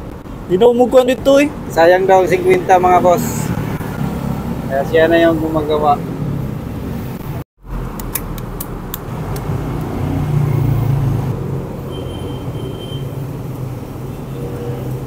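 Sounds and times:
low rumble of road traffic: 0.0 - 15.0
sharp clicks: 7.9 - 9.9.

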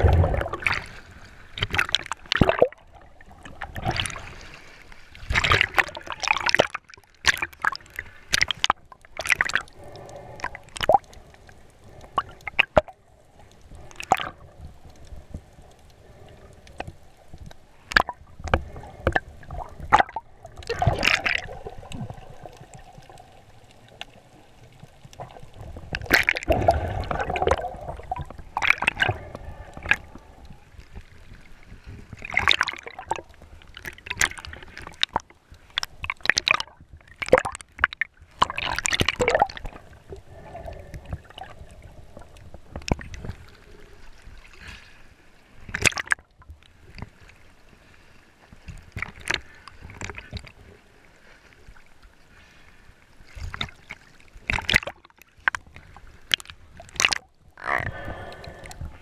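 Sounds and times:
water bubbling bursts: 0.0 - 1.0, 1.6 - 4.4, 5.2 - 11.2, 13.8 - 14.7, 17.8 - 30.7, 32.2 - 35.2, 36.0 - 43.2
water splashing and gurgling: 0.0 - 59.0.

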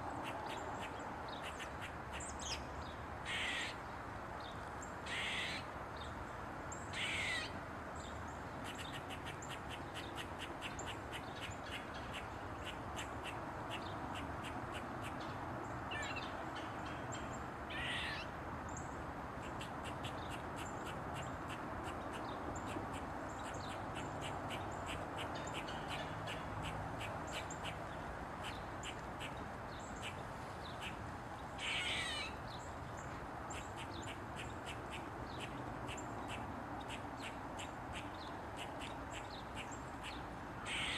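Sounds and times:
squirrel barking: 3.2 - 3.8, 5.1 - 5.7, 6.9 - 7.5, 17.7 - 18.3, 31.6 - 32.4, 33.5 - 40.9
squirrel squawking call: 3.2 - 3.8, 5.0 - 5.7, 6.9 - 7.5, 17.7 - 18.3, 31.6 - 32.4, 33.5 - 40.9.

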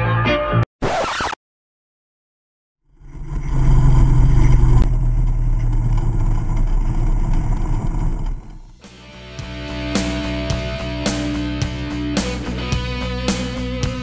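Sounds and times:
motorcycle engine at speed: 2.8 - 8.8.

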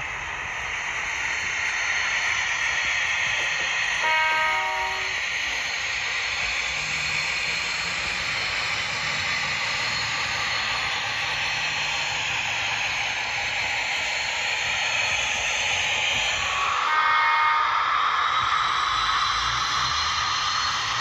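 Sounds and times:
hissy diesel engine drone: 0.0 - 21.0.

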